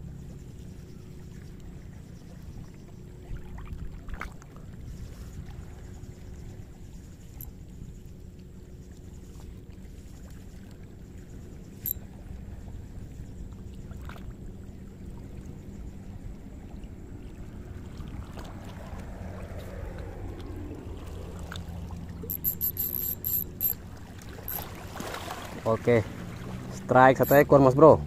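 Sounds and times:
steady low hum: 0.0 - 28.0
fishing reel drag clicking: 22.3 - 23.8, 24.5 - 24.7, 27.2 - 27.4.

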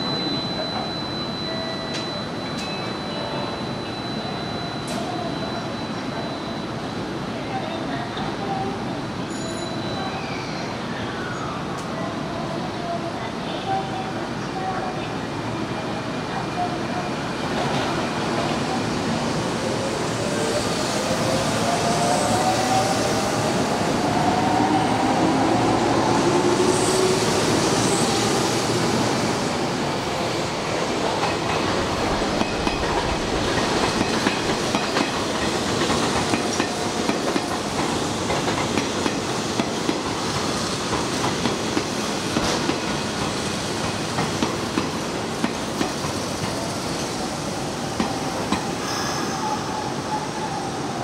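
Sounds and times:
train rumble: 17.5 - 48.8.

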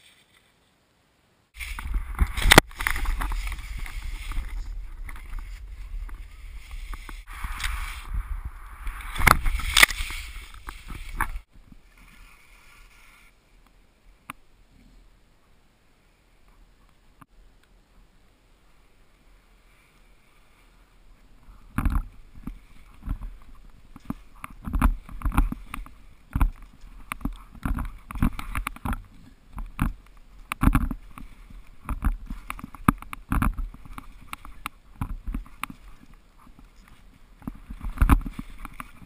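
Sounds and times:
skis swishing over snow: 1.6 - 13.4, 33.6 - 39.0.

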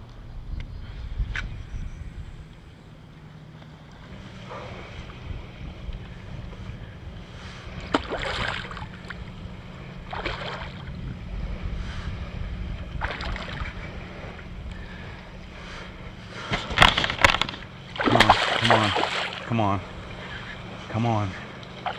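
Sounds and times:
wind buffeting microphone: 0.0 - 3.1, 4.0 - 21.9
waves slapping plastic hull: 7.8 - 9.2, 10.1 - 11.0, 12.9 - 13.8, 16.4 - 19.6
water splash: 7.9 - 9.2, 10.1 - 10.9, 13.0 - 13.7, 16.5 - 19.5.

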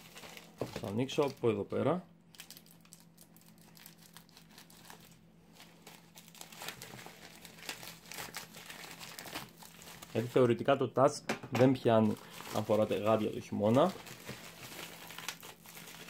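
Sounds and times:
plastic bag crinkling: 0.0 - 1.6, 2.3 - 10.7, 11.8 - 16.0.

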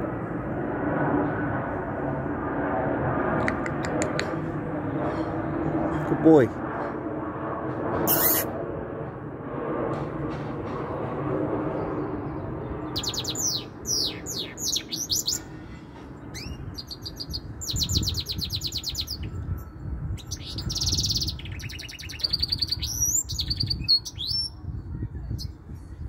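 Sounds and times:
steady low rumble: 0.0 - 26.0
finch singing trills: 12.9 - 19.4, 20.2 - 24.6.

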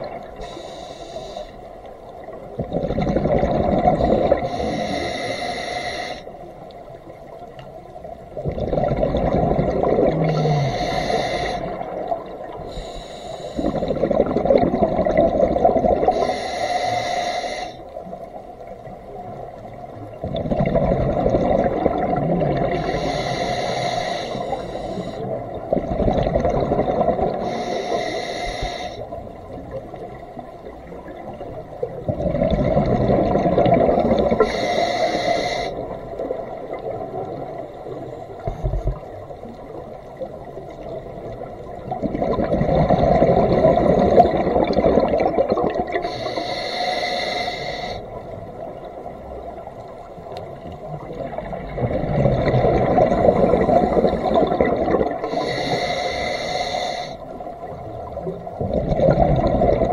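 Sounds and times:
scuba regulator breathing: 0.4 - 1.9, 3.8 - 6.5, 10.1 - 14.6, 15.9 - 18.0, 22.6 - 25.6, 27.0 - 29.3, 34.0 - 36.0, 43.1 - 48.3, 52.8 - 57.5
exhaled bubbles rushing: 2.4 - 4.6, 8.3 - 10.6, 13.6 - 16.2, 20.1 - 22.9, 25.3 - 27.5, 29.8 - 34.4, 38.6 - 46.1, 50.6 - 55.4, 57.8 - 59.9.

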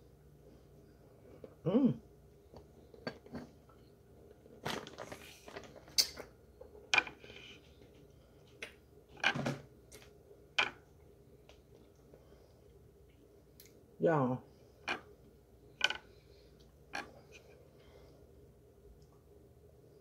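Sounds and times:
plastic bag crinkling: 4.6 - 6.0.

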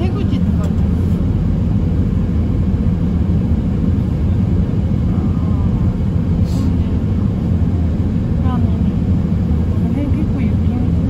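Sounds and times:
car engine and tyre noise: 0.0 - 11.0.

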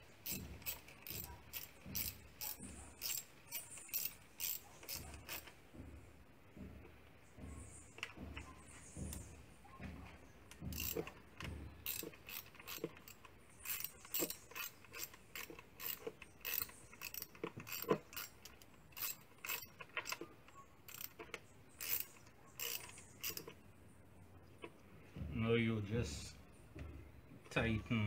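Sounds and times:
wrench metallic clicks: 0.2 - 5.6, 10.5 - 20.3, 20.9 - 23.6.

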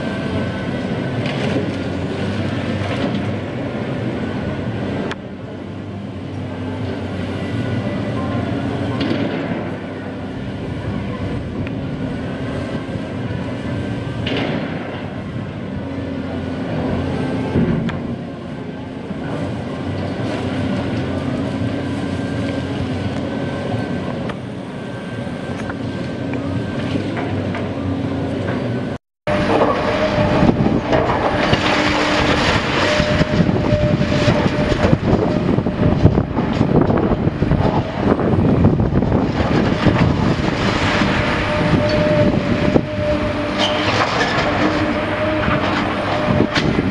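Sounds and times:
excavator diesel engine: 0.0 - 46.9
falling rubble: 29.3 - 36.8
concrete crunching and clattering: 29.3 - 37.0, 43.5 - 46.9.

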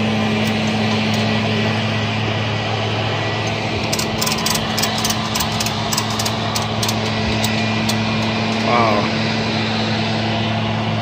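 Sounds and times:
truck engine idling: 0.0 - 11.0
ratchet strap clicks: 3.8 - 8.7.

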